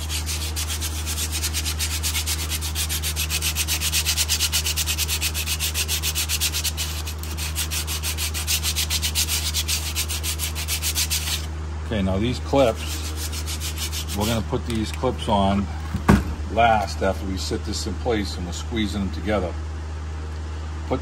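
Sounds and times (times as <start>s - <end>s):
sandpaper rubbing on metal: 0.0s - 11.5s, 12.5s - 14.8s.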